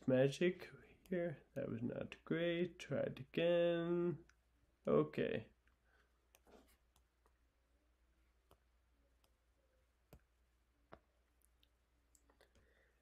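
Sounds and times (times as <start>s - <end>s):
stylus tapping tablet screen: 8.4s - 12.7s.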